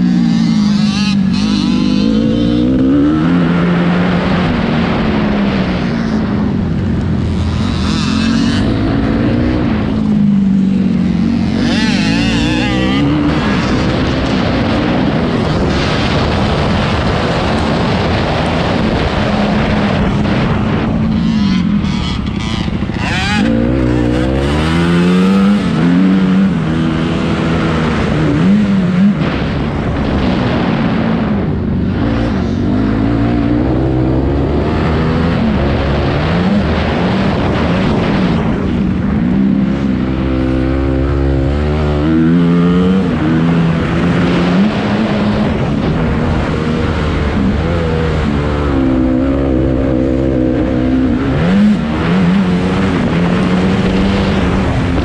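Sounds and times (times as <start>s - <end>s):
motocross engine revving: 0.0s - 5.0s, 7.1s - 31.0s, 31.8s - 55.0s.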